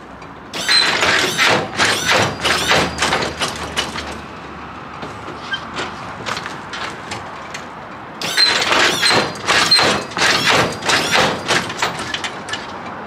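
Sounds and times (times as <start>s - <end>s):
hydraulic suspension squeaks and clunks: 0.6s - 4.2s, 5.3s - 6.0s, 8.2s - 12.8s.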